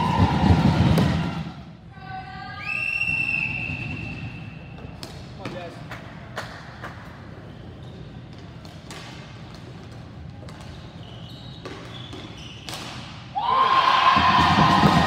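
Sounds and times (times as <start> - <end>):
low hum of rink: 0.0 - 15.0
hockey stick tapping ball: 8.3 - 10.8.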